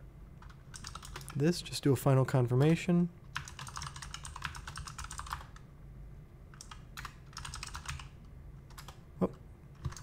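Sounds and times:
computer keyboard typing: 0.4s - 1.4s, 3.3s - 5.6s, 6.5s - 9.0s, 9.8s - 10.0s.

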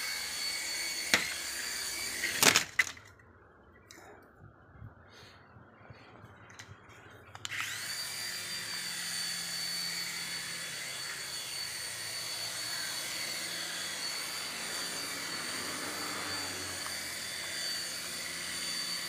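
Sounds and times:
rotor blades whirring: 0.0s - 2.9s, 6.9s - 19.0s
toy helicopter motor whine: 0.0s - 2.9s, 7.3s - 19.0s.

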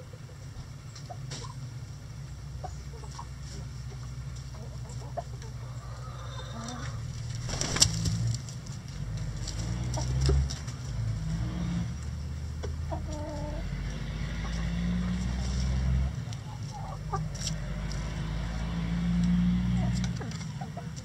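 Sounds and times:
chickens clucking: 0.0s - 8.6s, 9.2s - 11.0s, 12.0s - 21.0s.

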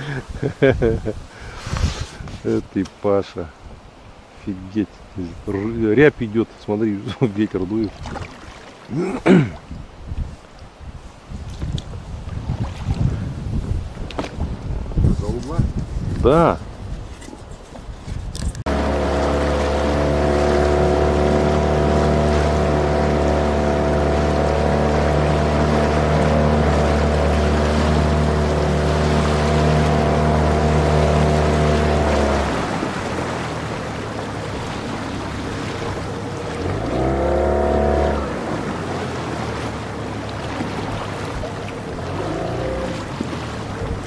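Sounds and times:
water noise: 0.0s - 44.0s
wind: 0.0s - 44.0s
motorboat engine: 18.6s - 44.0s.

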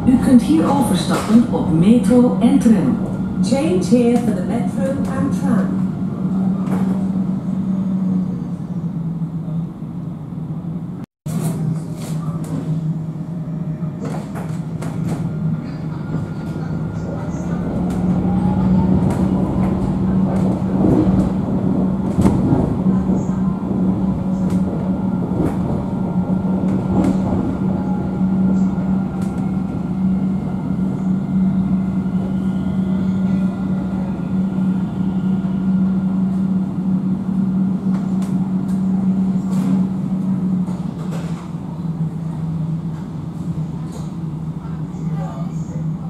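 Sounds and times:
rolling rail noise: 0.0s - 46.0s
tram low hum: 0.0s - 46.0s.

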